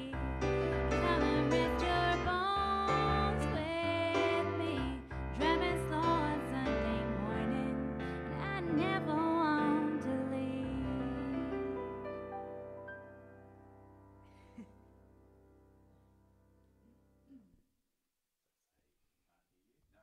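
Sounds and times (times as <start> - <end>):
woman singing: 0.0 - 12.0
keyboard piano and bass: 0.0 - 17.2.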